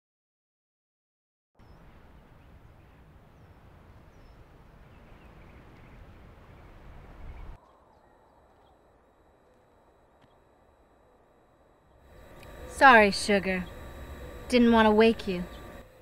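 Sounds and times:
wind rumbling on microphone: 1.6 - 9.0
faint bird chirps: 1.6 - 11.2
faint steady hum: 1.6 - 16.0.

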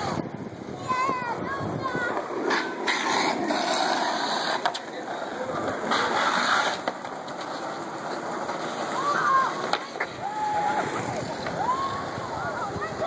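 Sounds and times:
skateboard wheels rolling on concrete: 0.0 - 13.0
skateboard clacks: 2.0 - 12.2.

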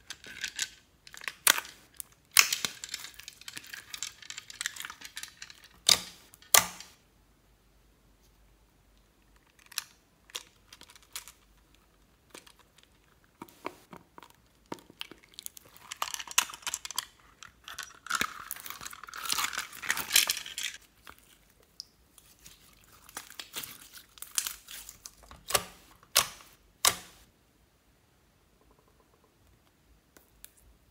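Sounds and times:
slime crackling and tearing: 18.0 - 20.3.

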